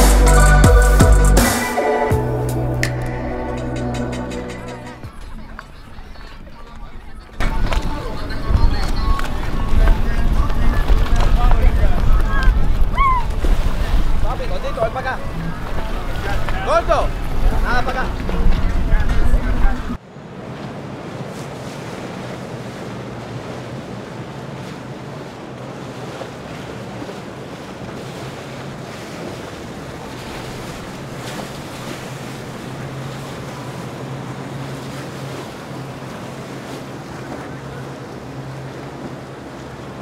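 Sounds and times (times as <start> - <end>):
boat motor humming: 0.0 - 40.0
water rushing: 0.0 - 40.0
wind noise on microphone: 7.4 - 14.3.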